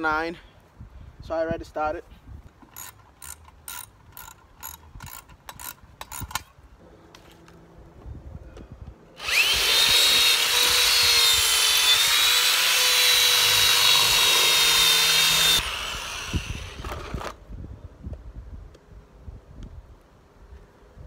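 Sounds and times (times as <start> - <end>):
power drill whining: 9.2 - 17.4.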